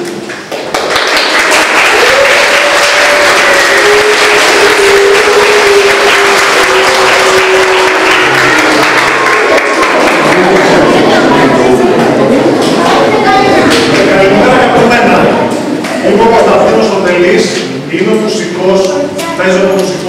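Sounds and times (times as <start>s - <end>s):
children applauding: 0.0s - 12.2s.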